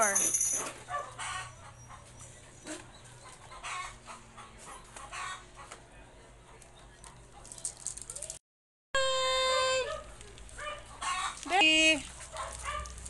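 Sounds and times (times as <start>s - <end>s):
chickens clucking: 1.0s - 7.4s, 10.8s - 11.5s.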